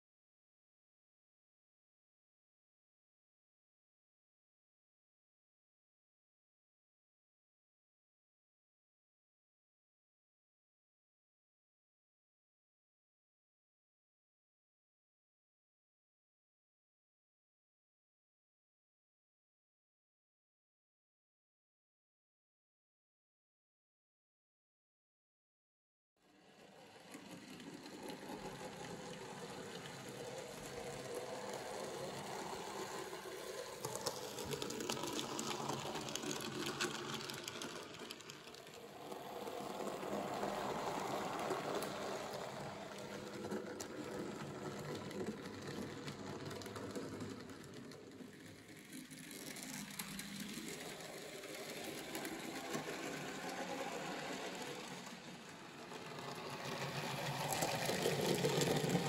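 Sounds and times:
model train motor whirring: 26.3s - 59.0s.

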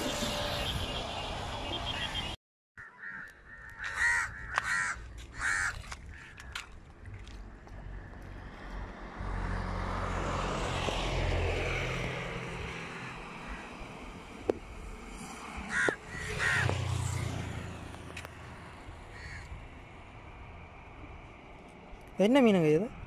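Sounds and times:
crow cawing: 2.8s - 6.6s, 15.7s - 16.9s, 19.1s - 19.5s
engine hum: 6.4s - 21.9s
vehicle passing by: 7.8s - 19.1s.

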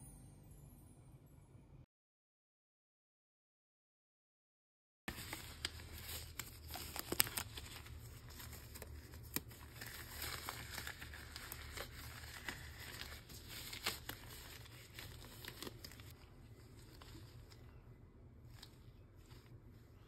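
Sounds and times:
disposable gloves rustling: 5.1s - 20.0s.

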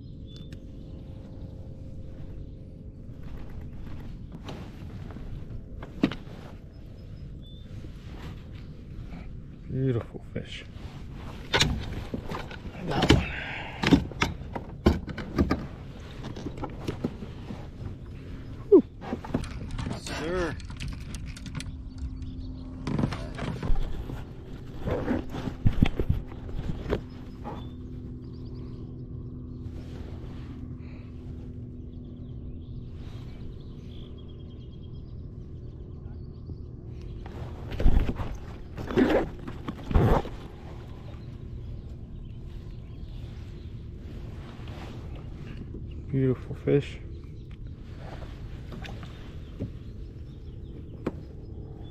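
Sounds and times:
faint high bird chirp: 0.0s - 2.7s, 6.3s - 8.3s
marsh ambience: 0.0s - 51.9s
steady low hum: 0.0s - 51.9s.

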